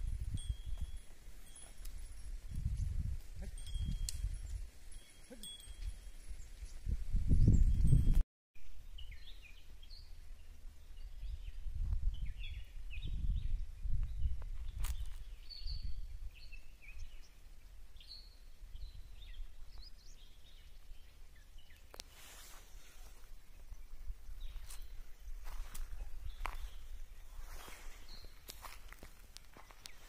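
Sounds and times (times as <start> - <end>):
small birds chirping: 8.8 - 30.0.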